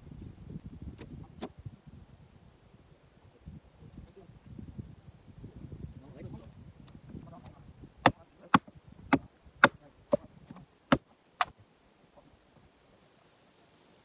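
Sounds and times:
splitting maul striking wood: 8.0s - 10.3s, 10.9s - 11.6s.

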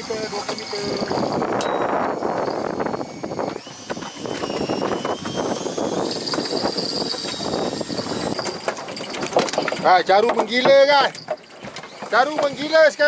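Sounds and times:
boat engine: 0.0s - 13.0s
wind: 0.0s - 13.0s.

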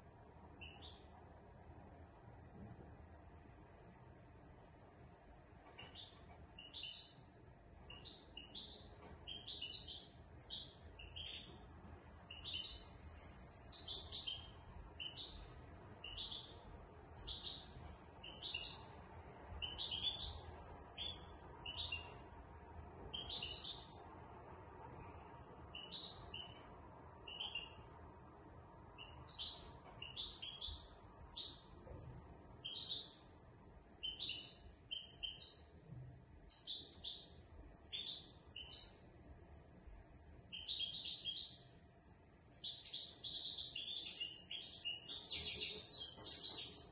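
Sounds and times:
goldfinch singing: 0.6s - 1.1s, 5.8s - 7.3s, 7.9s - 11.6s, 12.3s - 13.0s, 13.7s - 18.9s, 19.6s - 22.2s, 23.1s - 24.0s, 25.7s - 26.6s, 27.2s - 27.9s, 29.0s - 31.7s, 32.6s - 33.2s, 34.0s - 35.7s, 36.5s - 39.0s, 40.5s - 41.6s, 42.5s - 46.9s.

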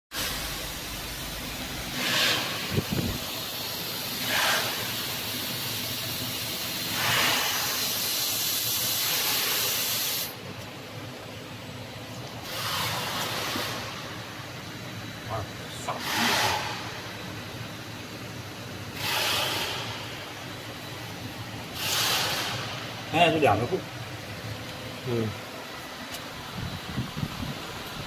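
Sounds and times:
laser welder hissing: 0.2s - 10.4s, 12.4s - 14.4s, 15.3s - 17.1s, 18.9s - 23.8s.

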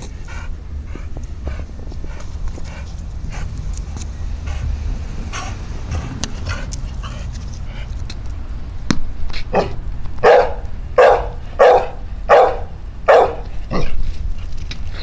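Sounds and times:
dog barking deeply: 9.5s - 14.0s.

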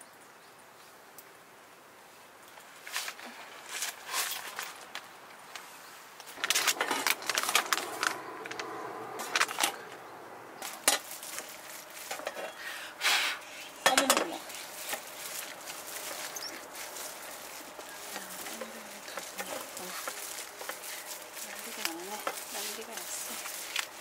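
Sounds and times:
metal dishes clattering: 12.1s - 12.6s, 13.8s - 14.4s.

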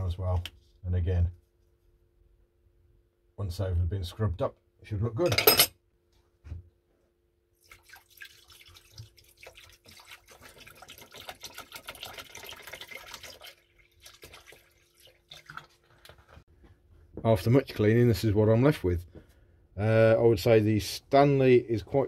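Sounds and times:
liquid pouring into plastic tub: 7.6s - 16.4s.

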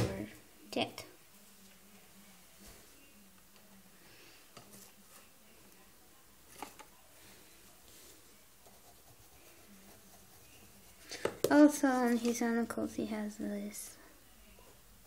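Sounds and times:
pencil scratching on paper: 8.6s - 11.1s.

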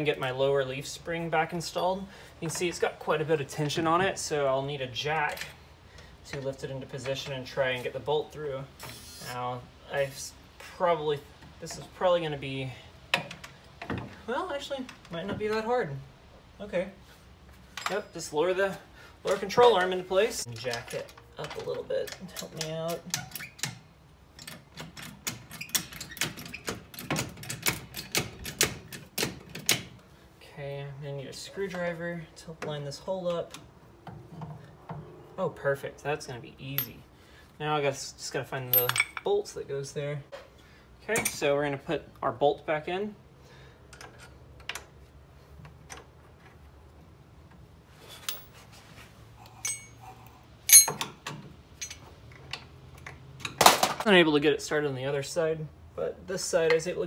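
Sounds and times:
tools clicking on steel parts: 38.7s - 39.3s, 48.2s - 48.5s, 49.4s - 53.6s
ringing metal clank: 49.6s - 50.0s, 50.7s - 51.1s.

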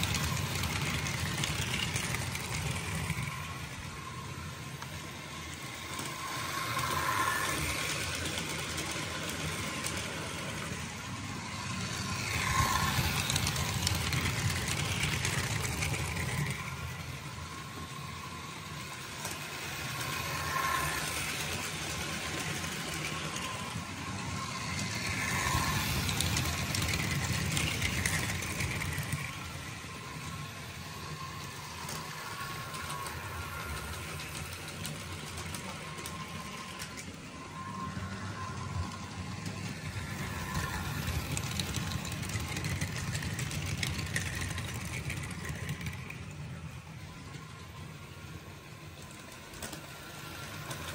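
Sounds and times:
model trains rumbling: 0.0s - 50.9s.

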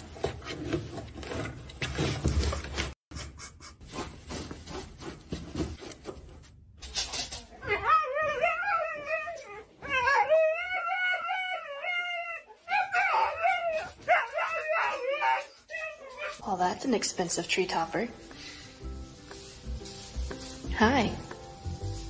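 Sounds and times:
dog howling: 7.6s - 16.4s
fabric rustling: 17.7s - 22.0s.

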